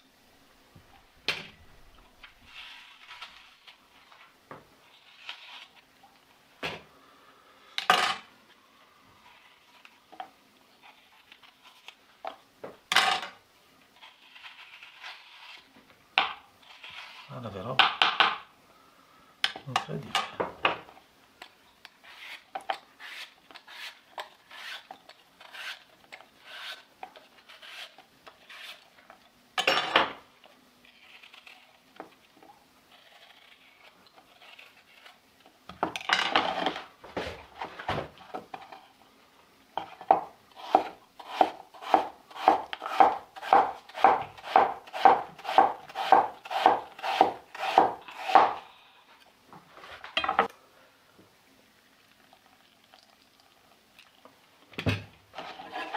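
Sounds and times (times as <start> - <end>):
knife peeling apple: 2.5 - 4.2, 4.8 - 5.9, 13.9 - 15.8, 16.6 - 17.8, 21.4 - 29.3, 30.8 - 35.6, 40.0 - 48.7.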